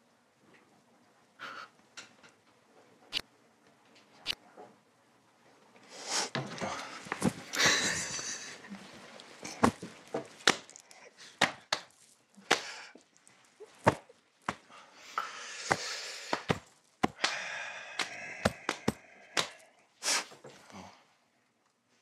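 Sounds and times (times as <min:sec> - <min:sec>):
stifled laughter: 0:07.5 - 0:08.8.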